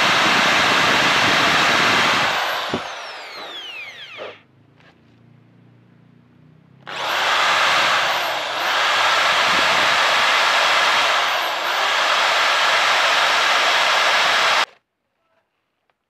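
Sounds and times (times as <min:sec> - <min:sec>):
electric drill drilling into steel: 0:00.0 - 0:04.4, 0:06.9 - 0:14.7.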